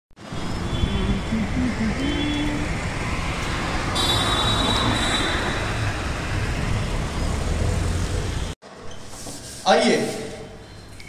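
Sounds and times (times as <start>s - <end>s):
road traffic rumble: 0.2s - 8.6s.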